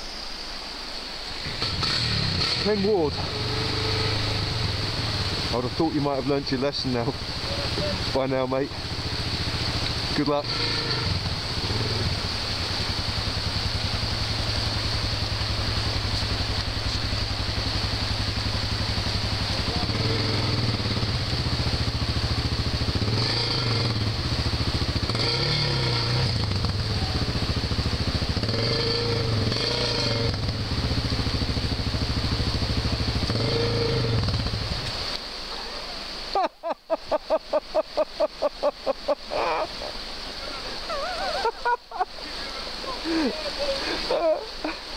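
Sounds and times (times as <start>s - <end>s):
river rushing: 0.0s - 44.9s
motorcycle engine revving: 1.4s - 35.2s.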